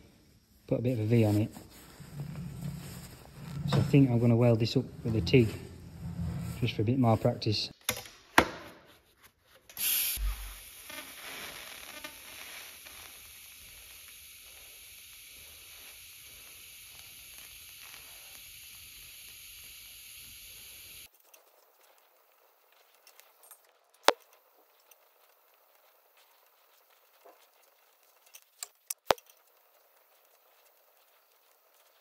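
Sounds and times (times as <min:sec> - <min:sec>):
welding arc sizzling hiss: 0:00.0 - 0:07.2, 0:09.7 - 0:21.1.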